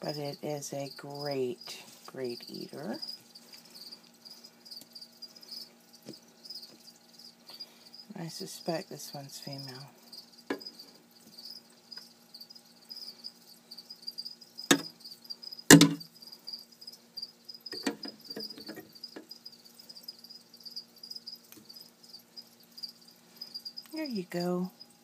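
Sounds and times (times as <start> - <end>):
crickets chirping: 0.0 - 25.0
sharp knocks and clicks: 14.7 - 14.9, 15.7 - 16.0, 17.7 - 19.3.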